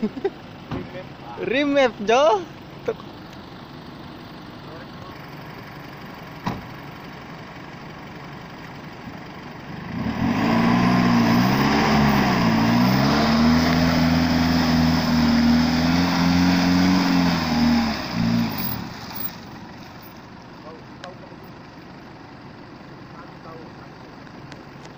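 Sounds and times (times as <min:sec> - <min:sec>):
pickup engine revving hard: 0:09.9 - 0:19.2.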